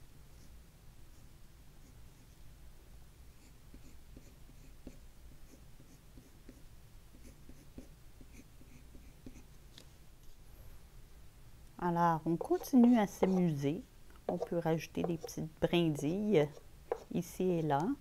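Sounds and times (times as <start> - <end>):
pastel rubbing on paper: 12.4 - 13.6.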